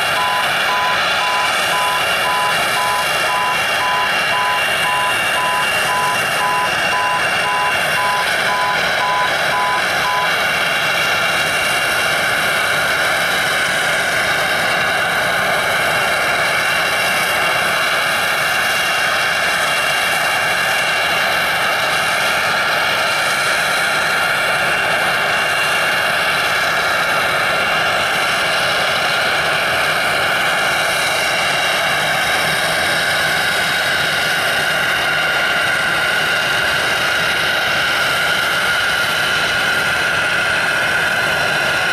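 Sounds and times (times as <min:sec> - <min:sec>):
jet engines whining: 0:00.0 - 0:41.9
electronic beep: 0:00.1 - 0:10.3.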